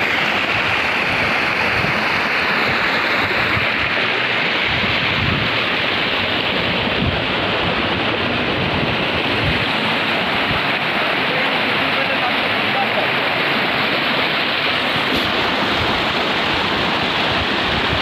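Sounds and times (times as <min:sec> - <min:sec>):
wind on microphone: 0:00.0 - 0:11.0, 0:14.8 - 0:18.0
river water over rocks: 0:00.0 - 0:18.0.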